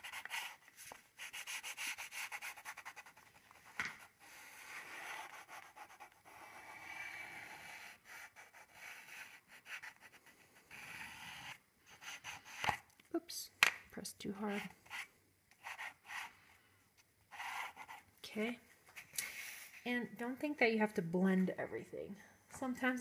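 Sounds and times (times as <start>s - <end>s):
pastel scratching on paper: 0.0s - 12.8s, 14.4s - 16.4s, 17.3s - 18.1s.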